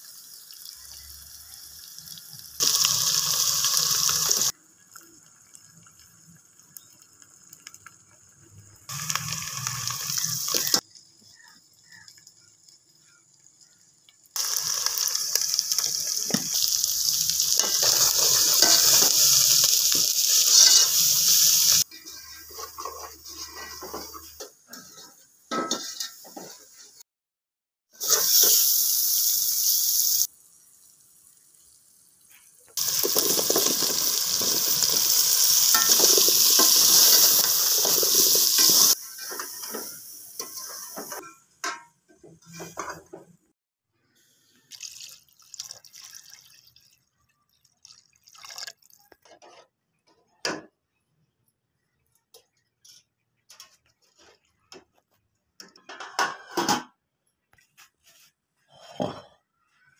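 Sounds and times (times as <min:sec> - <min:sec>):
food sizzling in metal pot: 0:00.0 - 0:27.0, 0:28.0 - 0:41.9.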